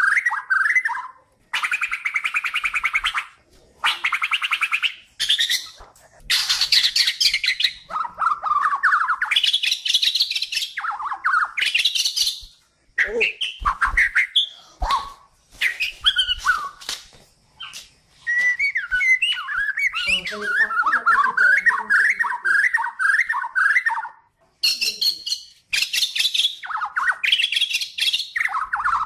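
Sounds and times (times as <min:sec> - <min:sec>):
songbird trilling and whistling: 0:00.0 - 0:17.0, 0:17.6 - 0:29.0.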